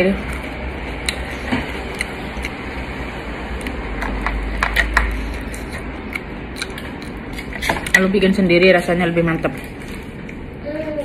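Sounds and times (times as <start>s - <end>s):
steady background hum: 0.0s - 11.0s
person chewing food: 0.2s - 7.9s.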